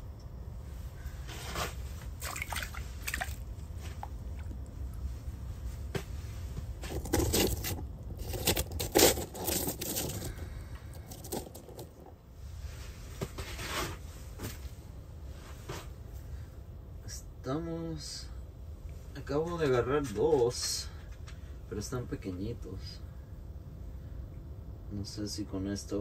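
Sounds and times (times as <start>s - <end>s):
steady low rumble: 0.0s - 26.0s
rustling and scraping handling: 0.7s - 16.2s.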